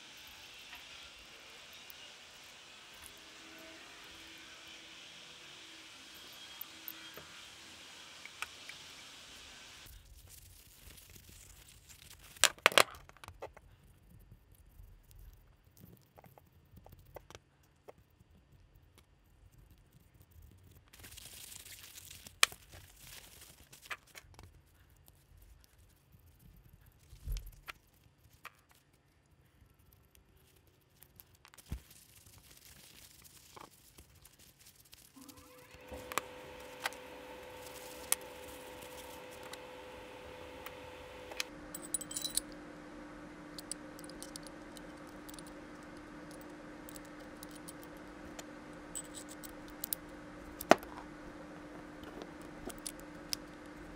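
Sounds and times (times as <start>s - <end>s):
steady background noise: 35.8s - 53.9s
metal parts clicking together: 40.6s - 42.6s, 43.5s - 51.0s.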